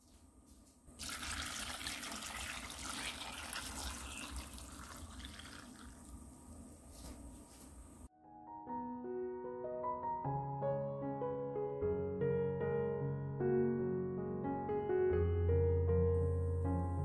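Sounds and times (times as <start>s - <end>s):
liquid pouring and splashing: 1.0s - 6.3s.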